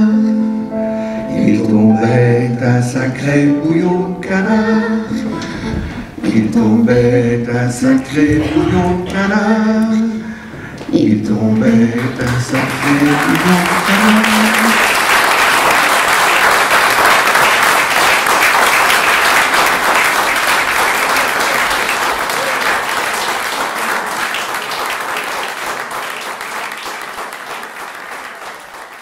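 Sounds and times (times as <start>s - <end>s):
audience applauding: 11.6s - 29.0s.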